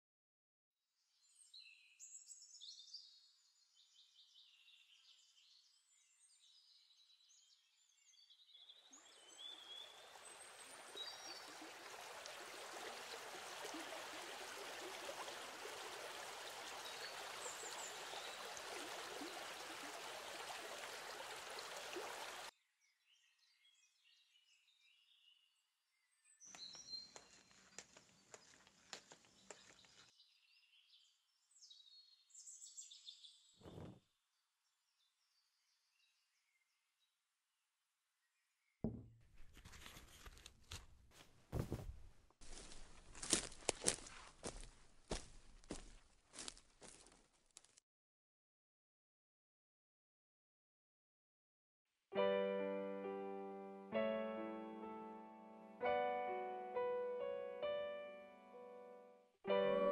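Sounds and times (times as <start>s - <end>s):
birds chirping: 8.3s - 22.5s, 26.3s - 31.1s
rushing water: 9.0s - 22.5s
footsteps on a slatted floor: 41.2s - 47.0s.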